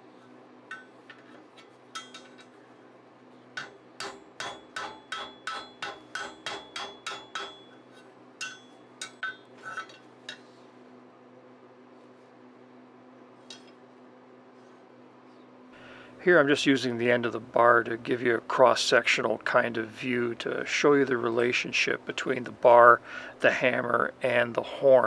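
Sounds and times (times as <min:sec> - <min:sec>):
hammer striking hot metal: 0:03.6 - 0:07.8, 0:08.4 - 0:09.5.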